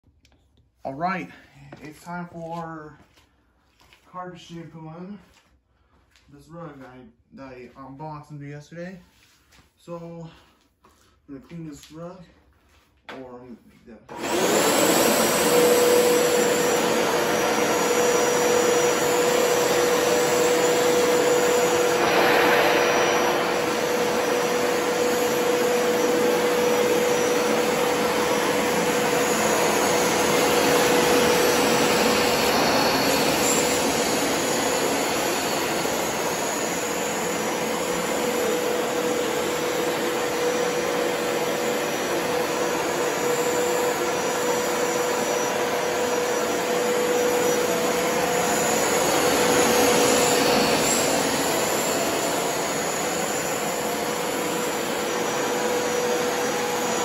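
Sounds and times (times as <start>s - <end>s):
carpet washer motor running: 14.1s - 57.0s.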